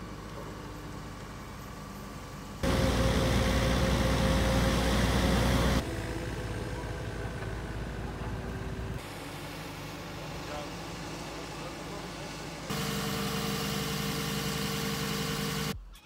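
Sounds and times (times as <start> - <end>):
diesel engine rumble with whine: 0.0 - 15.8
distant engine hum: 2.6 - 12.1.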